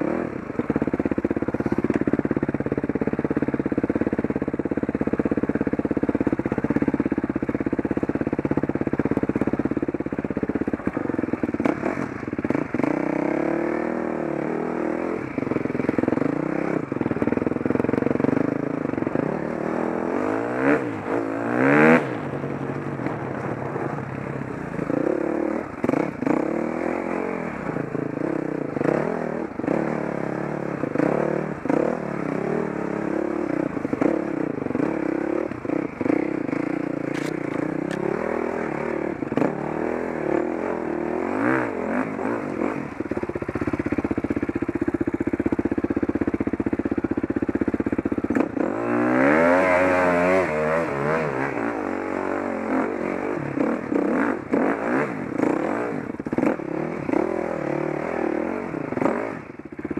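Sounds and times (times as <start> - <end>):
vehicle engine revving: 11.6 - 44.6, 48.3 - 59.9.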